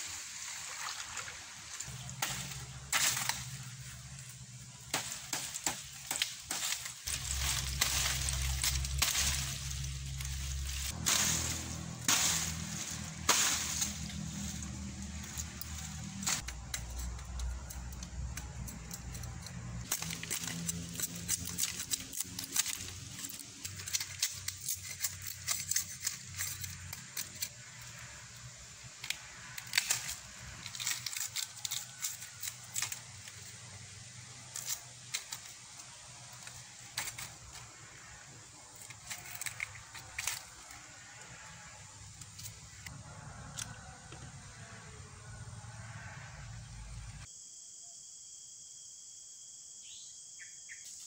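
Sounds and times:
rustling of dry leaves: 0.0s - 47.3s
machete chopping rattan stalks: 1.9s - 41.3s.

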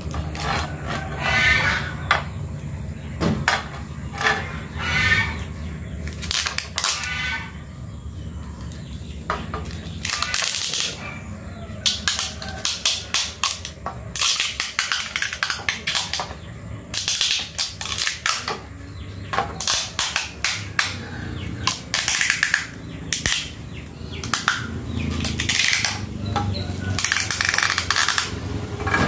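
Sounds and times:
crackling tape: 26.9s - 28.4s.

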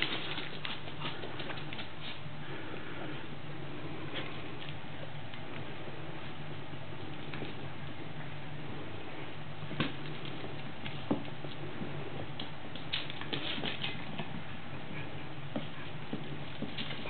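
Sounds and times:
puppy claws clicking on wooden floor: 0.0s - 2.0s, 12.3s - 14.4s
steady low hum: 0.0s - 17.0s.

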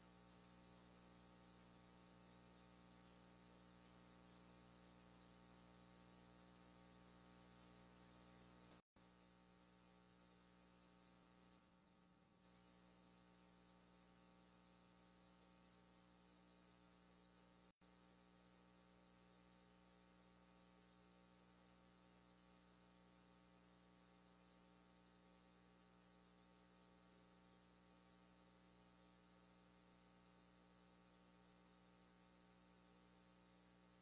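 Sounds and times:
faint electrical hum: 0.0s - 34.0s.

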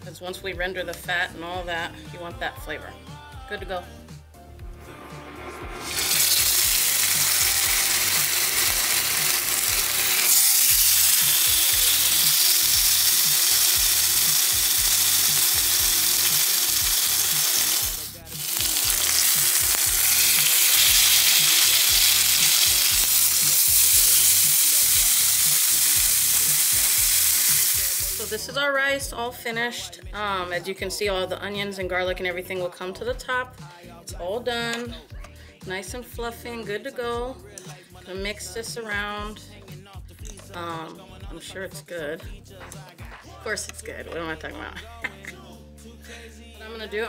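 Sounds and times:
steaks sizzling in hot oil: 5.6s - 28.4s.

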